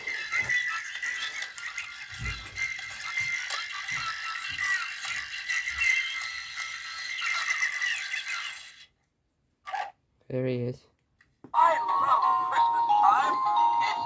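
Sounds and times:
jingly toy music: 0:11.6 - 0:14.0.

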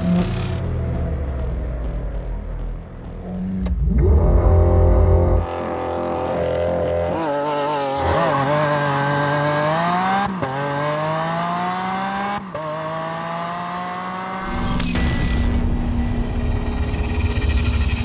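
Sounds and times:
car engine accelerating hard: 0:03.4 - 0:14.4.

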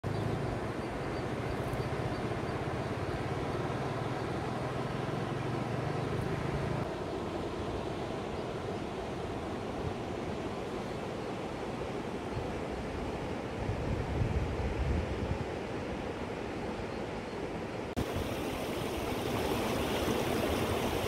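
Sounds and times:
river rushing over rocks: 0:18.0 - 0:21.0.

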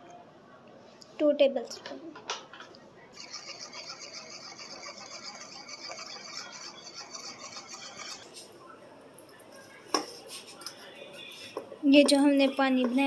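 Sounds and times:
spoon scraping ceramic bowl: 0:03.2 - 0:08.3.

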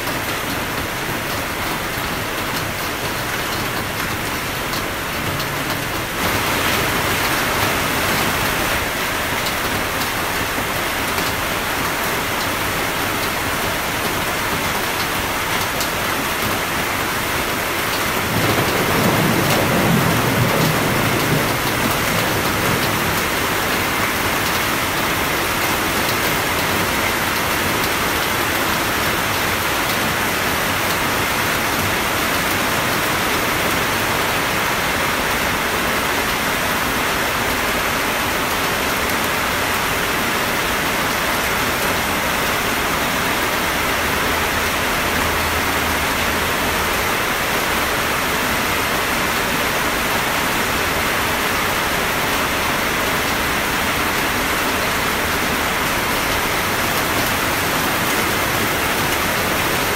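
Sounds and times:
rain hiss: 0:03.8 - 0:36.1
thunder rumble: 0:18.2 - 0:24.1.

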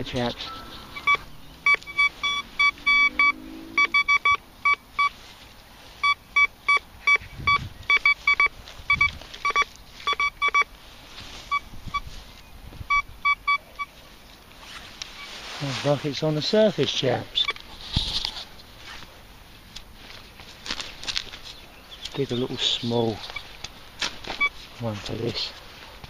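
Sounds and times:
metal detector beeping: 0:00.0 - 0:05.2, 0:06.0 - 0:10.7, 0:11.5 - 0:12.1, 0:12.9 - 0:13.9, 0:17.4 - 0:17.6, 0:24.3 - 0:24.6.

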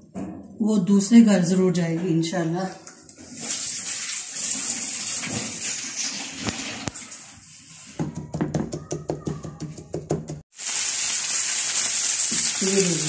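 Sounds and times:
meat sizzling in a pan: 0:10.5 - 0:13.0.

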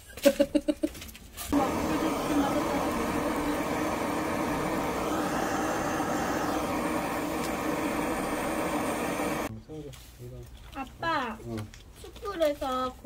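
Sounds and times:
butane torch flame rushing: 0:01.5 - 0:09.5.

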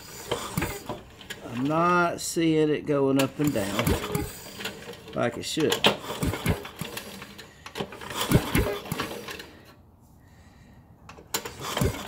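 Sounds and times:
engine recoil starter clicks: 0:00.0 - 0:01.8, 0:03.2 - 0:09.7, 0:11.0 - 0:12.0
recoil starter whirring: 0:00.0 - 0:12.0.

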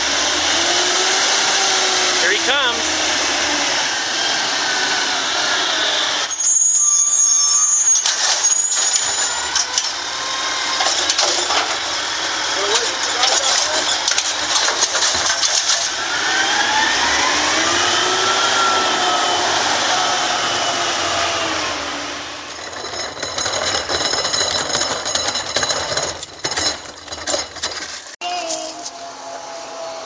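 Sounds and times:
garbage truck arm whine: 0:00.0 - 0:28.2
bin wheels rattling over gravel: 0:10.7 - 0:16.0, 0:22.5 - 0:28.8
garbage truck arm clattering: 0:10.8 - 0:16.0, 0:22.5 - 0:28.2.

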